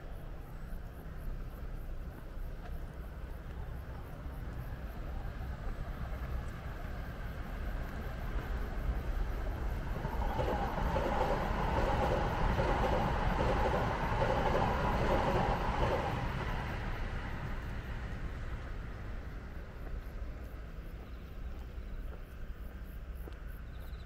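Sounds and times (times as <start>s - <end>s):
electric train passing: 0.0s - 24.0s.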